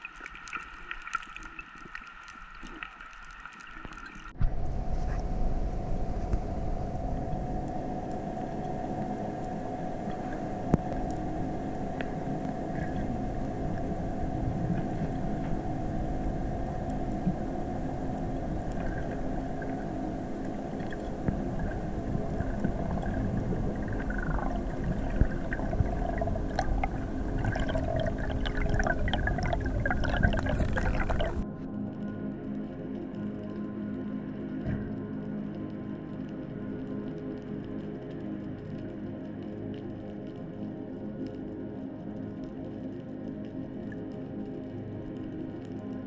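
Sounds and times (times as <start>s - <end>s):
underwater sea rumble: 0.0s - 31.5s
water sloshing and bubbling: 0.0s - 31.6s, 36.9s - 46.0s
constant hum: 0.0s - 46.0s.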